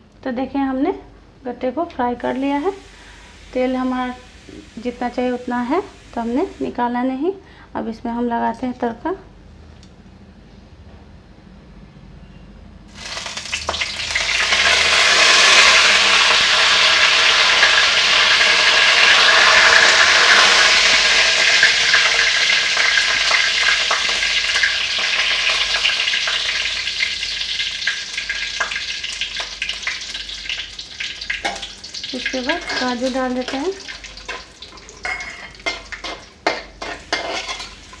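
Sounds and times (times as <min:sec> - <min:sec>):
leaves sizzling in hot oil: 0:02.2 - 0:06.8, 0:12.9 - 0:38.0
oil crackling: 0:12.9 - 0:38.0.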